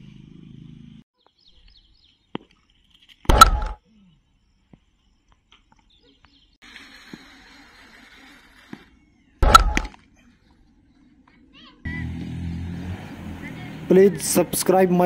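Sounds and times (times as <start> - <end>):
cricket bat striking ball: 3.3 - 3.8, 9.4 - 10.0
faint bird chirps: 3.8 - 9.4.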